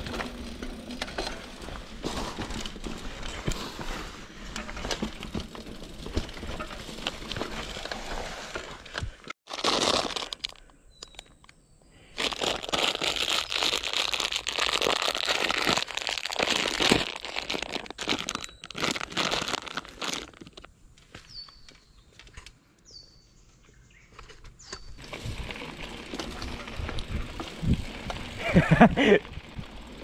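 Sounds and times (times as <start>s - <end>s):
plastic packet crinkling: 9.5s - 11.3s, 12.2s - 20.7s.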